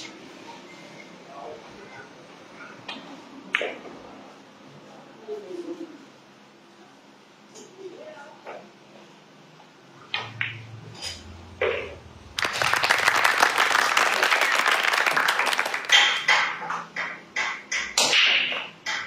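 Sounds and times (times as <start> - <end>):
pool balls clacking: 10.1 - 19.0
people clapping: 12.3 - 17.2.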